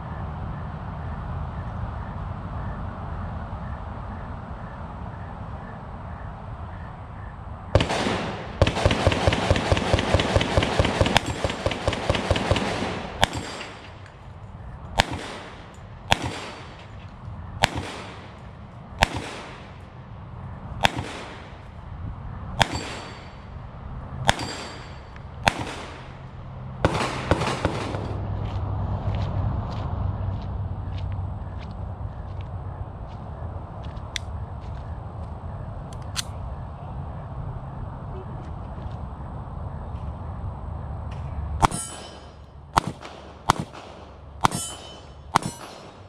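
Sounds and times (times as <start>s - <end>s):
gunshots: 7.8s - 14.0s, 15.0s - 16.9s, 17.6s - 18.4s, 19.0s - 19.8s, 20.8s - 21.7s, 22.6s - 23.4s, 24.2s - 26.2s, 26.8s - 28.2s, 41.6s - 46.0s.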